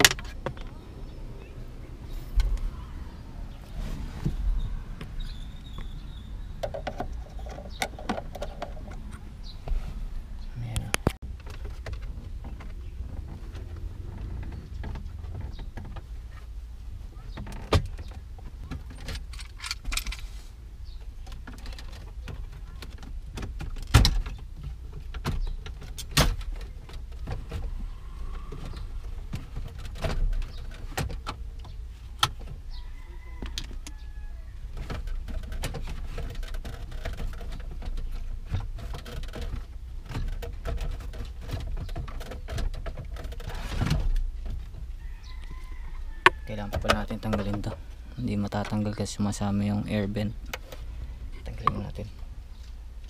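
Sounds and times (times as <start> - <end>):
steady low rumble: 0.0 - 17.4.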